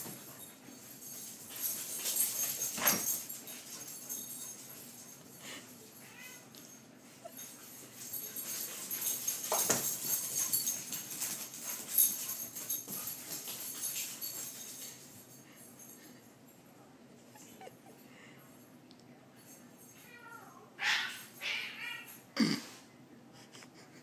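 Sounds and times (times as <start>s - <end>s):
collar tags jingling: 0.0s - 16.7s.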